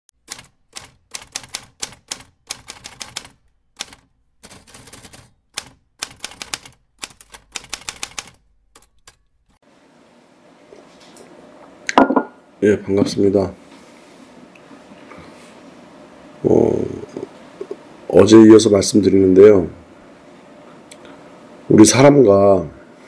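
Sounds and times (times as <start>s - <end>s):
typewriter keys clacking: 0.2s - 9.4s.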